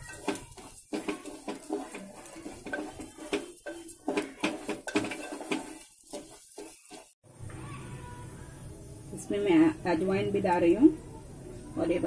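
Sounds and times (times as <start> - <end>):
spatula scraping metal pan: 0.0 - 7.2.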